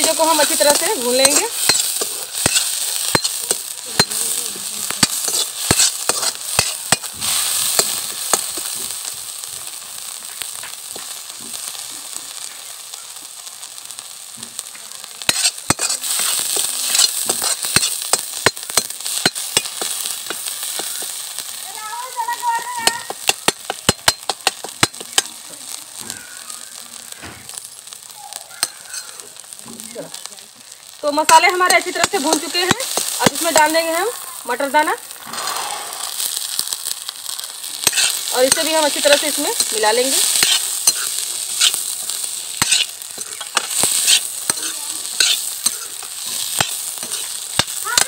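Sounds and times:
spice paste sizzling in oil: 0.0s - 48.0s
sharp clicks and pops: 22.5s - 25.4s, 36.2s - 48.0s
ladle stirring: 39.6s - 47.7s.

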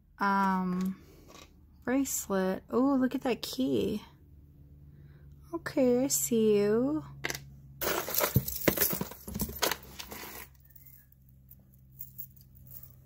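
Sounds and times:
metal jewelry clinking and jangling: 7.8s - 13.0s.

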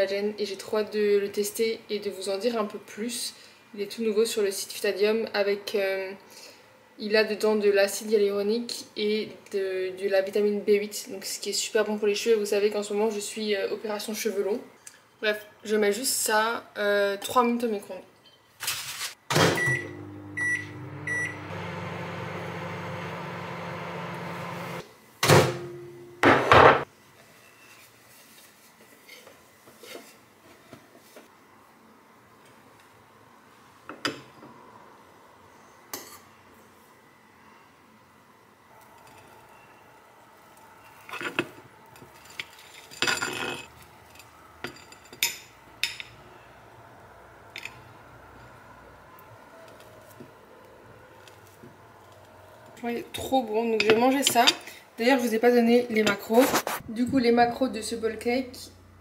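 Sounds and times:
microwave oven humming: 19.3s - 24.8s
microwave door shutting: 19.3s - 25.7s
short keypad beeps: 19.6s - 21.4s.

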